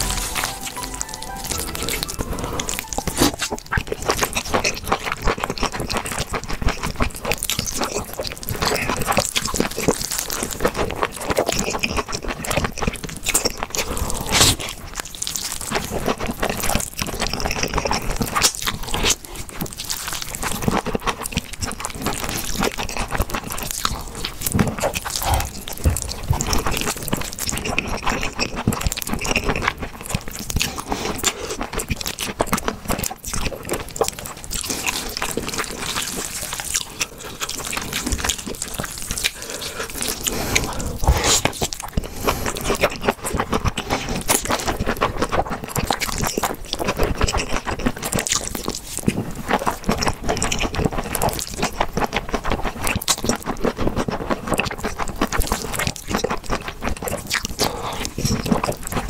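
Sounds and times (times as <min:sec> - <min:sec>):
slurping and chewing noodles: 0:00.0 - 0:59.0.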